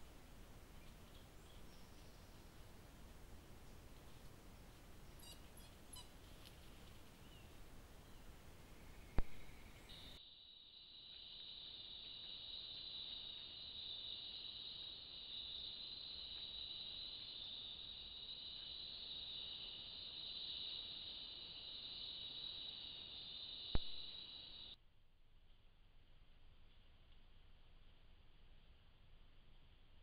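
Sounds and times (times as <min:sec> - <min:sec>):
insects chirring: 0:00.8 - 0:24.8
sharp click: 0:23.7 - 0:24.1.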